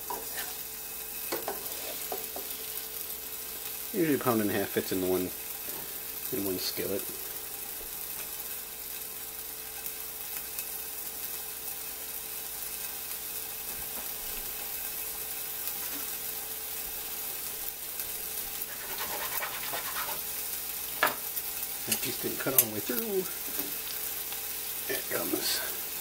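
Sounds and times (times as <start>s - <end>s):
fish sizzling in hot oil: 0.0s - 26.0s.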